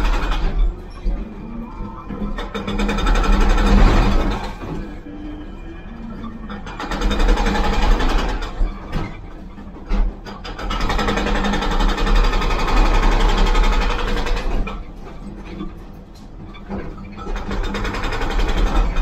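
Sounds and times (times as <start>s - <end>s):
excavator engine: 0.0s - 19.0s
hydraulic breaker hammering concrete: 9.8s - 15.1s, 16.8s - 19.0s.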